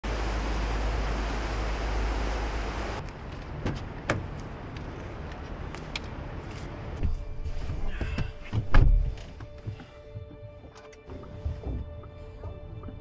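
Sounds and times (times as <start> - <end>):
outdoor deep rumble: 0.0 - 5.8.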